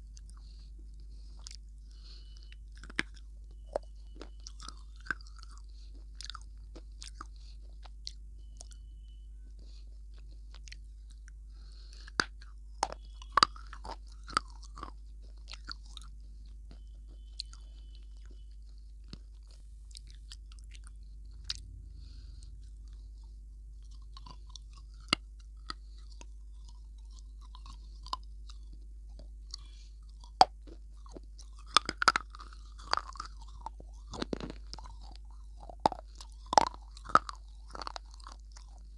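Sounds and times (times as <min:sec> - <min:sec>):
crunchy chewing: 0:00.0 - 0:38.9
steady low hum: 0:00.0 - 0:38.9.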